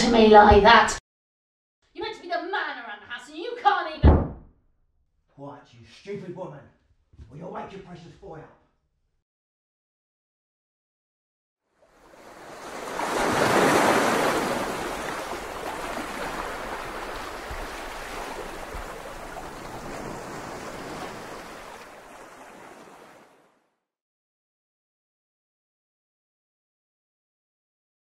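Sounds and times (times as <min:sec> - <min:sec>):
sea waves washing in: 0:11.8 - 0:23.5.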